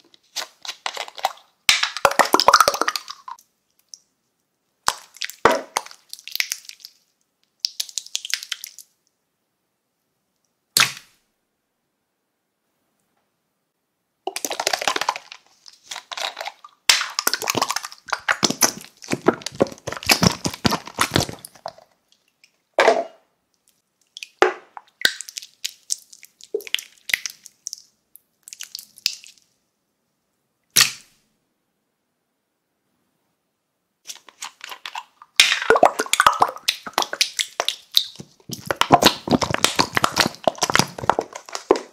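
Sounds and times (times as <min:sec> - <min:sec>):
slime squishing and popping: 0:00.3 - 0:03.4, 0:04.8 - 0:08.9, 0:14.3 - 0:21.9, 0:24.1 - 0:29.4, 0:30.8 - 0:31.2, 0:34.1 - 0:41.9.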